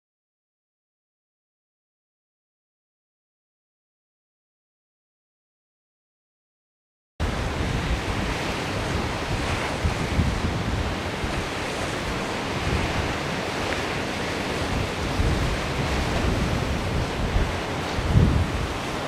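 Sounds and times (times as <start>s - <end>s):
choppy sea rushing: 7.2s - 19.0s
wind buffeting microphone: 7.2s - 19.0s.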